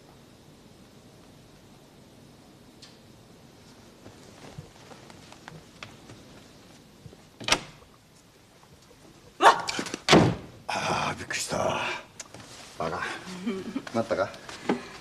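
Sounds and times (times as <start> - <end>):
faint clicks and rustles: 3.6 - 10.1.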